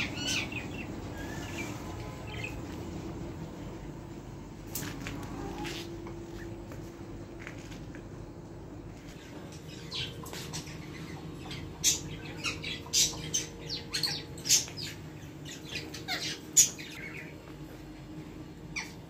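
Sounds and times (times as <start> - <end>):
chicks cheeping: 0.0 - 2.6, 9.1 - 17.5.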